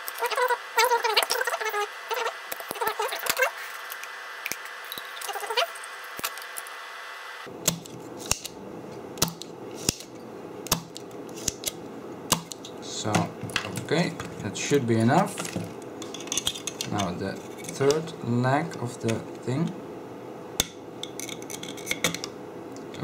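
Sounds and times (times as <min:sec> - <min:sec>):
wavering voice-like tone: 0:00.0 - 0:03.7, 0:05.1 - 0:05.9.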